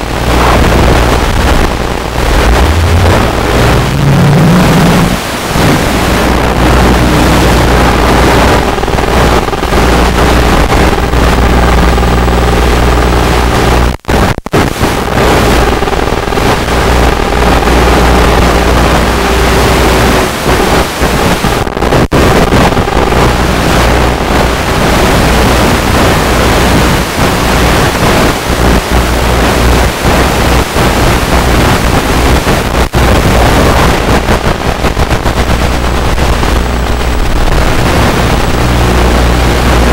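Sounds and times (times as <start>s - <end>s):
rushing wind noise: 0.0s - 39.9s
static: 0.0s - 39.9s
faint wavering hum: 0.4s - 9.7s.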